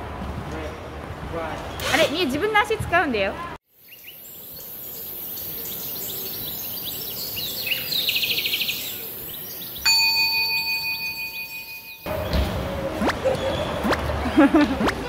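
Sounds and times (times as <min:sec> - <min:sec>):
bird-like chirps and twitters: 0:03.8 - 0:10.5
bell-like chime tone: 0:09.9 - 0:12.1.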